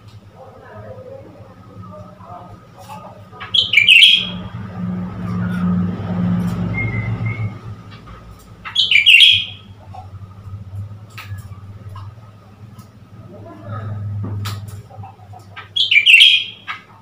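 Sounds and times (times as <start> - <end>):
vehicle engine hum passing: 0.0 - 17.0
bird harsh chattering: 3.4 - 4.5, 8.6 - 10.0, 15.4 - 17.0.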